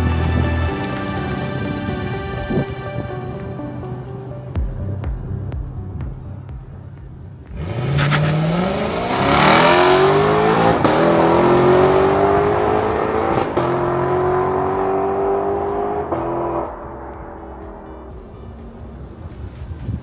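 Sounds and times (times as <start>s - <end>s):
car engine accelerating hard: 7.5s - 20.0s.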